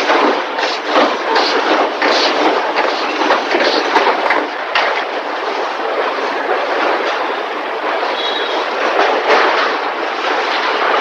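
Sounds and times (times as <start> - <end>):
metalworking clatter and hiss: 0.0 - 7.4.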